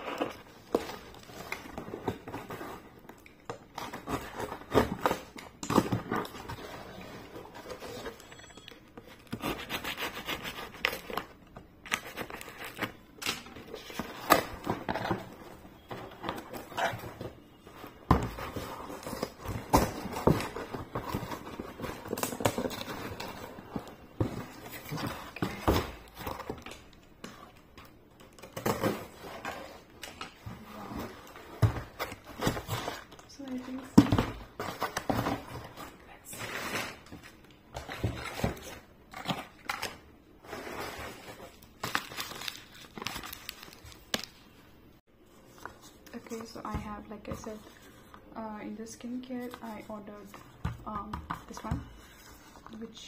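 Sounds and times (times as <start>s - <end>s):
plastic wrap crinkling: 41.2s - 44.5s.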